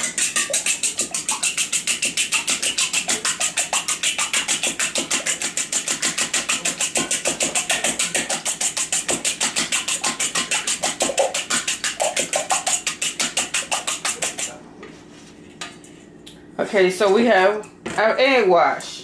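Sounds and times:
whisk clicking against bowl: 0:00.0 - 0:14.5.

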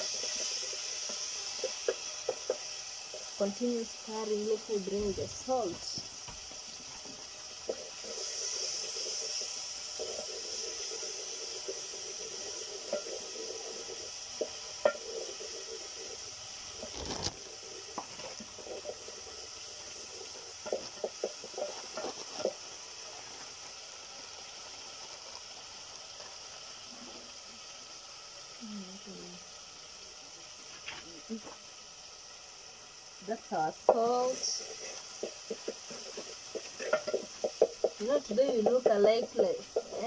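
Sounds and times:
onions and tomatoes sizzling: 0:00.0 - 0:40.0
wooden stick scraping a pot: 0:34.5 - 0:39.2.

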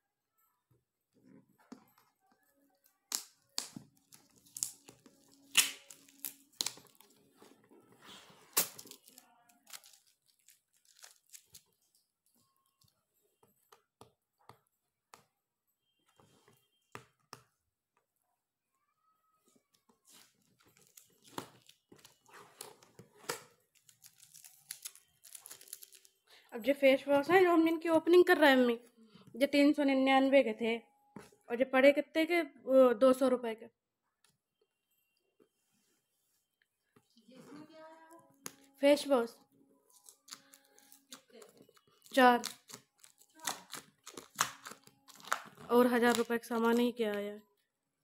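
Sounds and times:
packaging ripping and crinkling: 0:03.1 - 0:07.2, 0:08.4 - 0:12.0, 0:20.0 - 0:26.2, 0:39.9 - 0:46.4.

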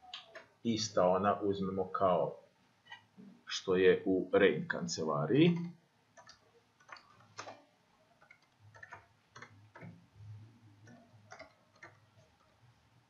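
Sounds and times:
faint keyboard keystrokes: 0:10.8 - 0:12.6.

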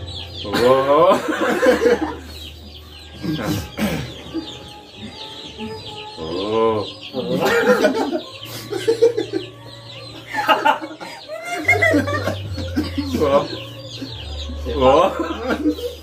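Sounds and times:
group of people laughing: 0:00.4 - 0:02.6, 0:07.2 - 0:16.0.

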